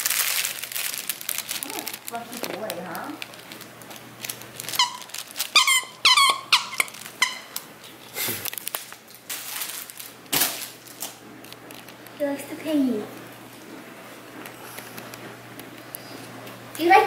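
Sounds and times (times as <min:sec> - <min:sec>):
rustling: 0:00.0 - 0:12.0
dog toy squeaking: 0:04.7 - 0:07.6.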